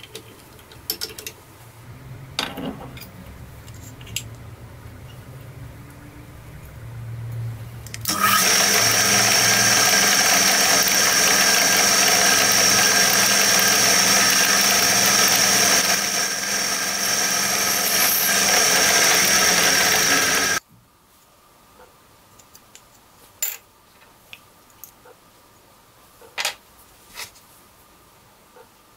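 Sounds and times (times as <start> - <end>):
drill press grinding with whine: 8.1 - 20.6.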